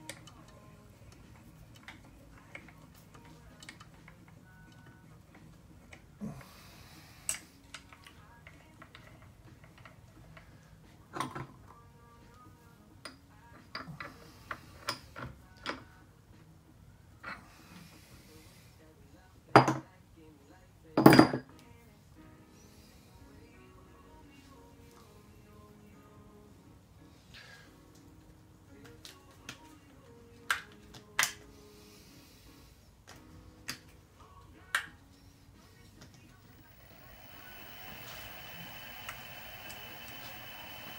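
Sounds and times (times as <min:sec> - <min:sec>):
faint low hum: 0:35.6 - 0:40.9.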